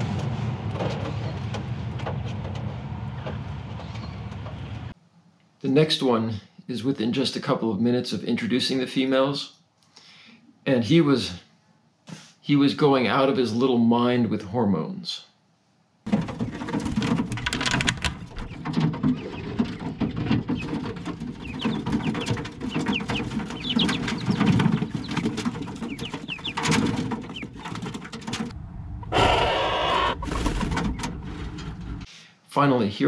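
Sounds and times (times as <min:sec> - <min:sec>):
rapid wing flapping: 0:16.1 - 0:28.5
quail chirping: 0:18.4 - 0:28.1, 0:29.1 - 0:30.3.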